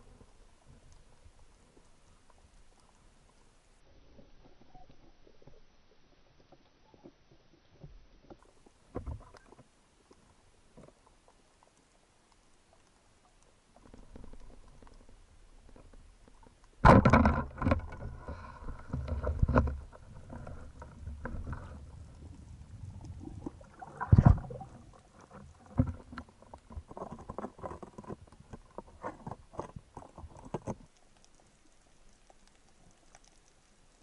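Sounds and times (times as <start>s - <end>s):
loud underwater thump: 16.8s - 17.6s, 24.0s - 24.6s
underwater water rushing: 16.8s - 28.1s.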